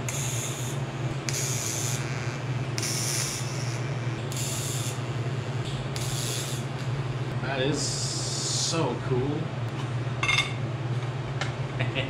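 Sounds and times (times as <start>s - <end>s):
welding arc hissing: 0.0s - 6.8s
steady low hum: 0.0s - 12.0s.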